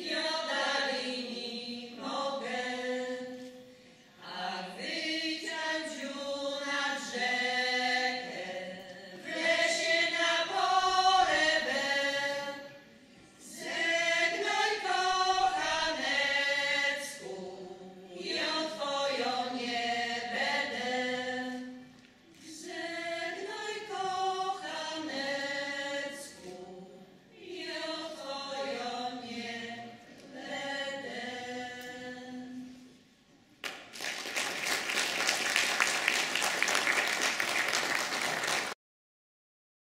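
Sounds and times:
women singing a cappella: 0:00.0 - 0:33.2
audience applause: 0:33.6 - 0:38.8.

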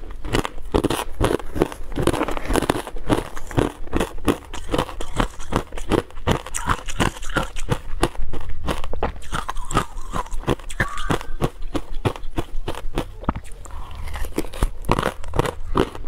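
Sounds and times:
ice being chewed: 0:00.0 - 0:16.0.

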